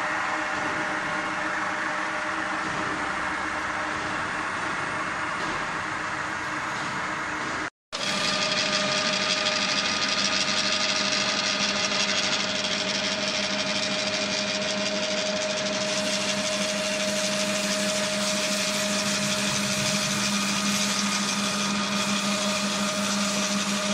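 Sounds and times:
milling machine humming: 0.0 - 23.9.

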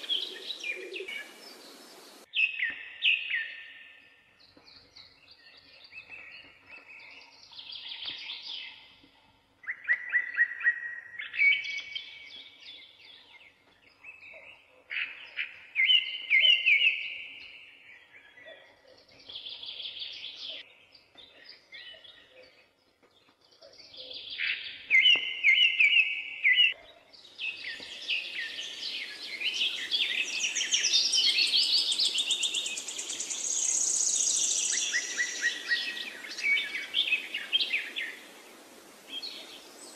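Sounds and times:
steady hiss: 0.0 - 2.3, 32.0 - 39.9
birds chirping and trilling: 0.0 - 39.9.

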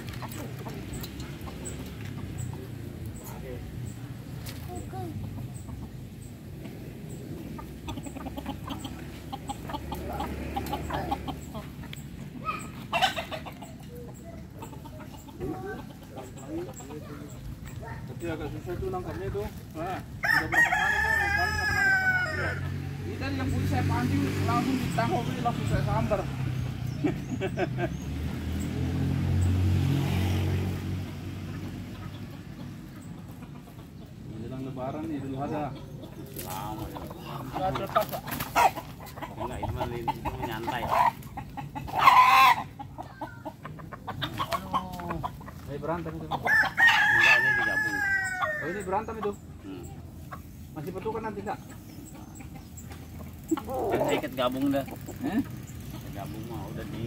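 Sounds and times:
vehicle engine passing by: 0.0 - 20.0, 21.3 - 57.0
chickens clucking: 0.0 - 57.0.

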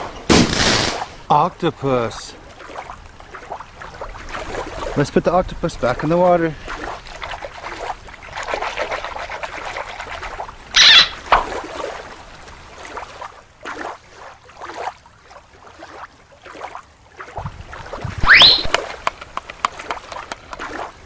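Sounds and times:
shallow water splashing: 0.0 - 21.0
water dripping: 17.2 - 21.0.

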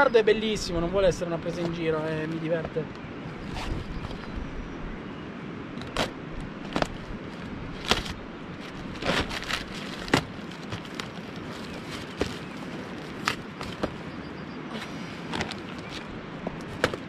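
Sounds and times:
cardboard rustling: 6.7 - 14.1, 15.3 - 17.0
cardboard flaps tearing apart: 7.8 - 14.0
packing tape ripping: 8.8 - 13.4.

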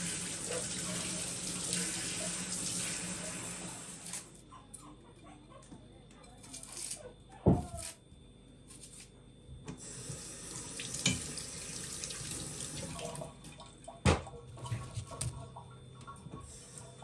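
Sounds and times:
tap running into a steel sink: 11.0 - 11.4.

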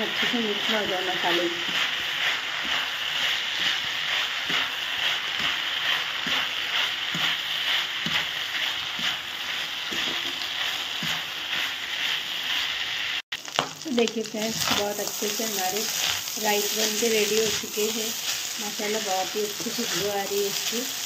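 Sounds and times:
rice sizzling in hot oil: 0.0 - 21.0
plastic spatula stirring: 1.6 - 11.9.

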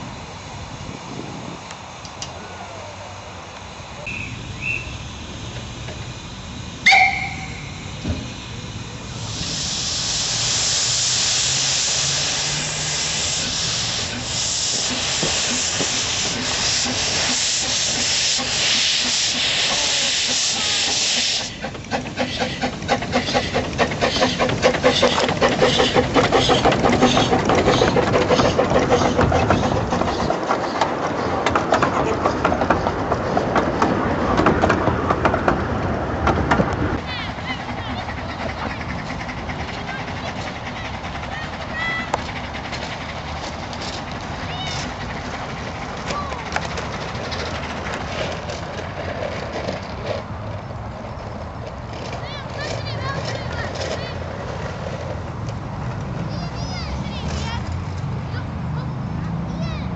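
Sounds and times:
steam hissing: 0.0 - 30.8
rhythmic beats of moving train: 3.1 - 59.9
steam whistle blast: 6.8 - 8.0.

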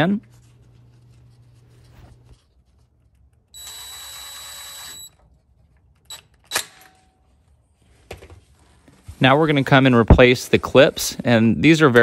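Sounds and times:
cordless driver whining: 3.6 - 5.2.

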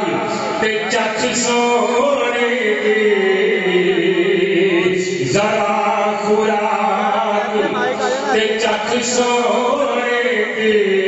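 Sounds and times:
man chanting: 0.0 - 11.0.

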